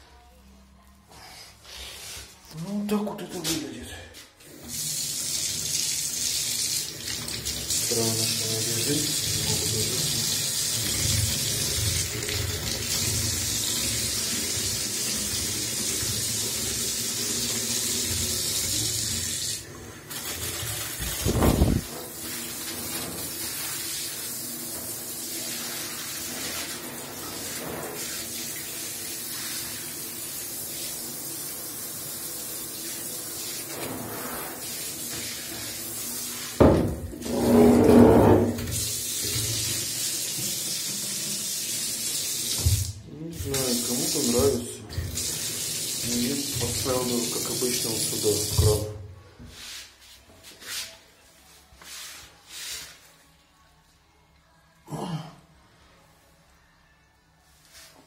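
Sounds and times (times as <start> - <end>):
water running into bathtub: 4.4 - 49.7
water gush or knock: 20.2 - 23.6, 36.4 - 41.1, 42.5 - 49.0.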